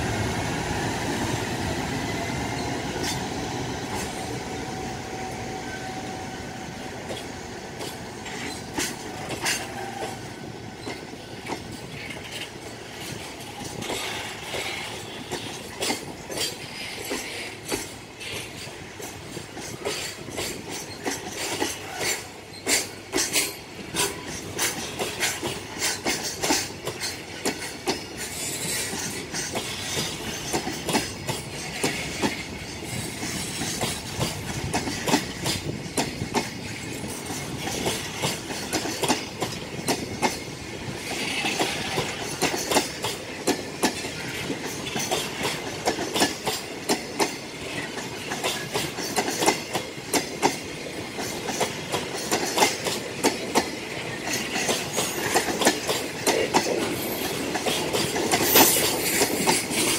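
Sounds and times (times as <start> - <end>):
freight train rumble: 0.0 - 59.9
wheels clacking over rail joints: 7.0 - 59.9.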